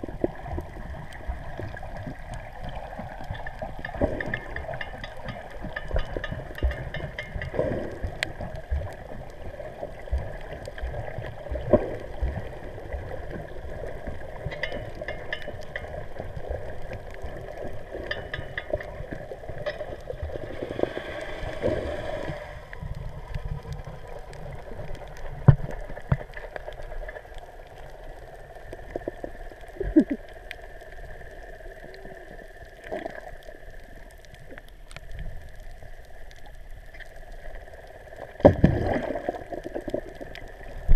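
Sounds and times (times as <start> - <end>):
water gurgling underwater: 0.0 - 40.9
short clicks underwater: 29.8 - 30.3.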